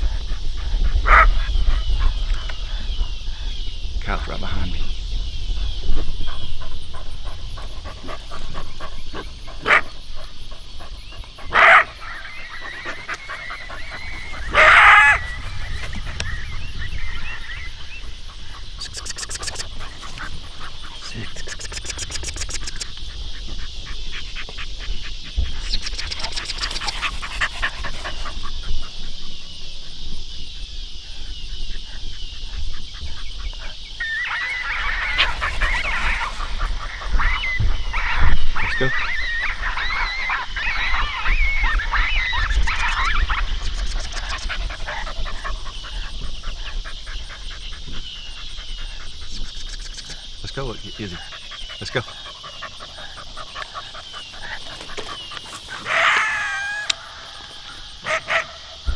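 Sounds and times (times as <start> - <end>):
high insect drone: 0.0 - 58.9
dog barking and yelping: 0.9 - 2.5, 6.9 - 17.4, 33.6 - 49.4, 51.1 - 58.9.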